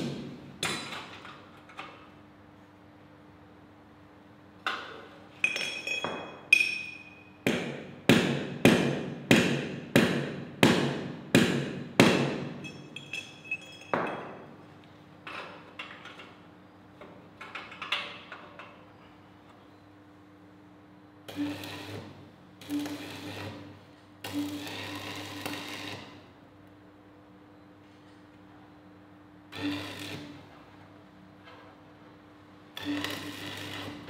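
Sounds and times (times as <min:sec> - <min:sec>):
metal clinks: 0:05.4 - 0:07.4, 0:12.6 - 0:14.5
hammer striking steel: 0:05.4 - 0:14.5.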